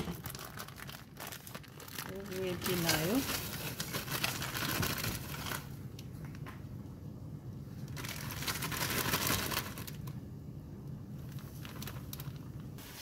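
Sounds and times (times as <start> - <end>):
frozen pieces rustling into pot: 0.0 - 5.8, 7.8 - 10.2, 11.2 - 13.0
plastic bag crinkling: 0.0 - 6.4, 7.8 - 10.2, 11.2 - 13.0.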